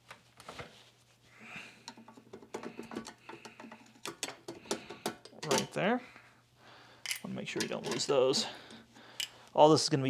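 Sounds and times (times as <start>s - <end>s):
clicks and taps on metal: 1.9s - 5.7s.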